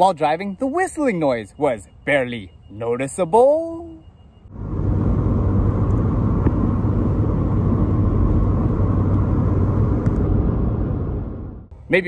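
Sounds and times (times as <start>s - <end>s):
wind and road noise in car: 4.5s - 12.0s.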